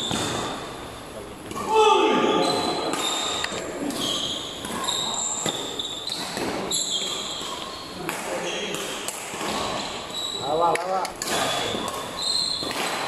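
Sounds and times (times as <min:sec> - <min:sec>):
racquet hitting shuttlecock: 0:00.0 - 0:00.8, 0:02.8 - 0:10.0, 0:10.7 - 0:13.0
court shoes squeaking: 0:00.0 - 0:13.0.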